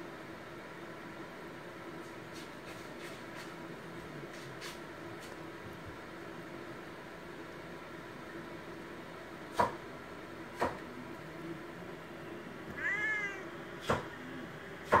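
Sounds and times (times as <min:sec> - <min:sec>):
steady low hum: 0:00.0 - 0:15.0
cat meowing: 0:12.7 - 0:13.5.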